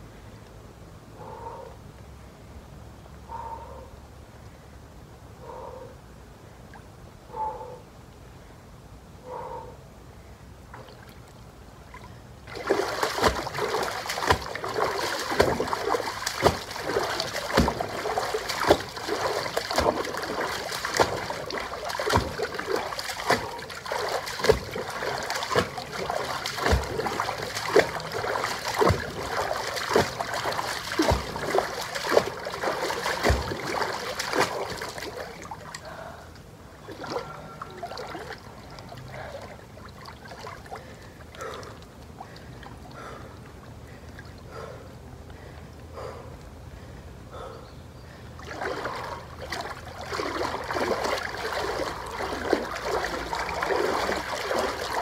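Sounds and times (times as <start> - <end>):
feet splashing through pool water: 10.7 - 36.1, 36.8 - 44.8, 48.4 - 55.0.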